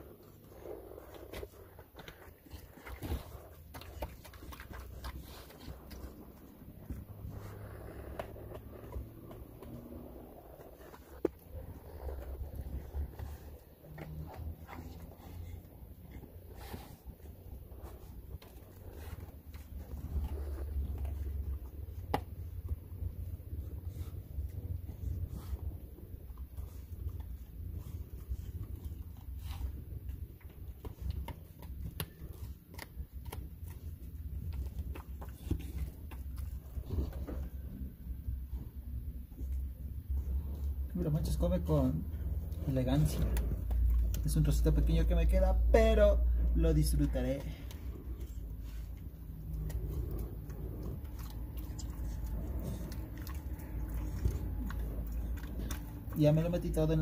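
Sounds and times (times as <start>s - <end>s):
low rumble: 0.0s - 30.8s
dog gnawing a hard chew: 0.0s - 38.6s, 46.3s - 57.0s
low steady hum: 0.0s - 57.0s.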